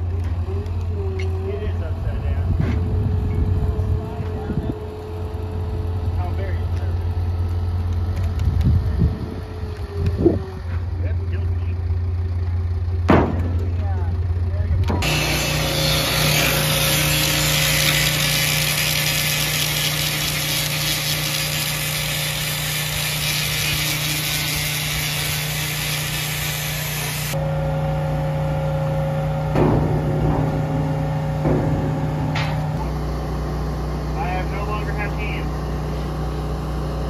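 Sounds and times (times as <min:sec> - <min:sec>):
crane engine humming: 0:00.0 - 0:37.0
loud broad hiss: 0:15.0 - 0:27.4
knocks: 0:29.6 - 0:32.9.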